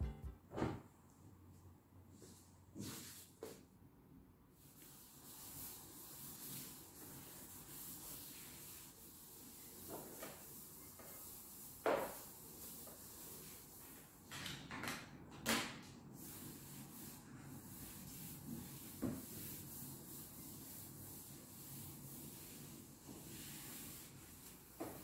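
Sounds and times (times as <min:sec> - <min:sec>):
cloth wiping a tabletop: 0:02.1 - 0:03.6, 0:04.6 - 0:14.2, 0:16.2 - 0:25.0.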